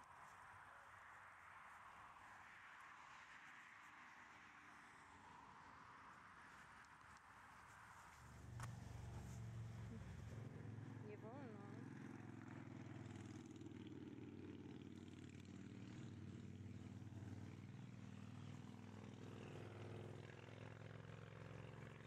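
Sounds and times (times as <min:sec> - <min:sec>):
faint low hum: 0:00.0 - 0:11.7.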